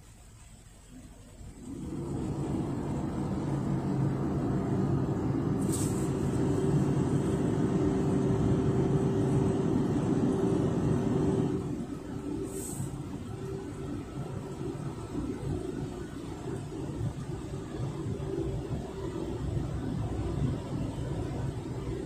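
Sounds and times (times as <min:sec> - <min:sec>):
drying blower fan drone: 0:01.5 - 0:22.0
brief high hiss: 0:05.6 - 0:06.6.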